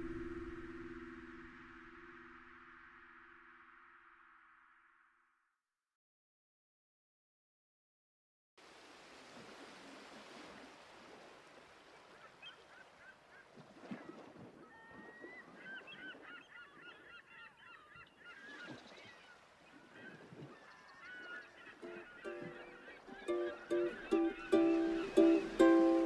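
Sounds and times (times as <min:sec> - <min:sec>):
flock of birds calling: 0:14.8 - 0:26.0.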